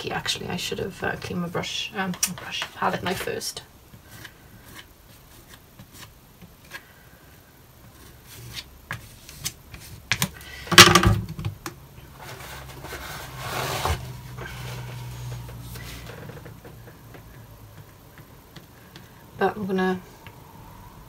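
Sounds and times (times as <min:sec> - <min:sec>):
painting tool scraping: 0:12.1 - 0:16.5.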